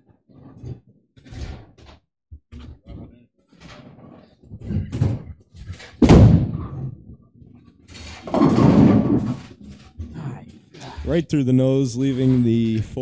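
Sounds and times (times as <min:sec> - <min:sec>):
heavy thud: 0:06.0 - 0:06.9
bowling ball crashing into pins: 0:06.0 - 0:07.0, 0:08.1 - 0:09.5.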